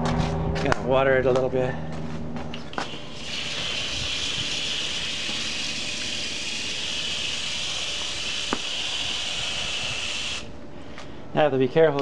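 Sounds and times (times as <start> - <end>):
water hissing onto plant: 2.9 - 10.4.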